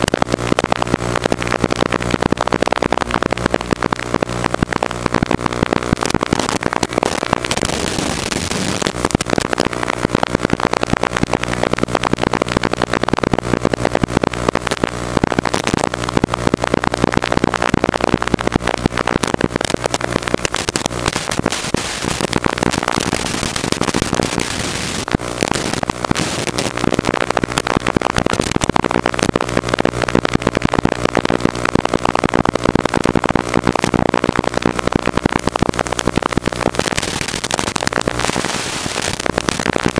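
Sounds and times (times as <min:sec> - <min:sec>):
crackling static: 0:00.0 - 0:39.9
drone motor buzz: 0:03.0 - 0:11.6, 0:17.2 - 0:39.8.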